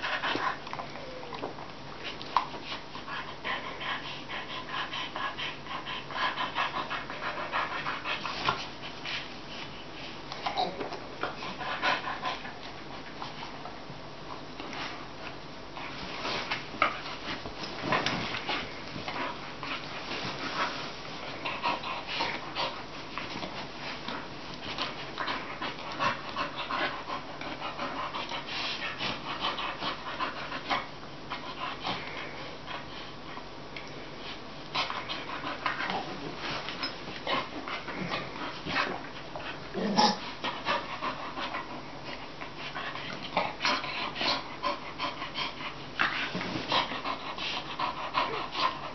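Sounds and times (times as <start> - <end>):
dogs play-biting: 0.0 - 48.9
dogs heavy breathing: 2.0 - 10.2, 11.3 - 13.7, 15.9 - 33.5, 34.2 - 48.9.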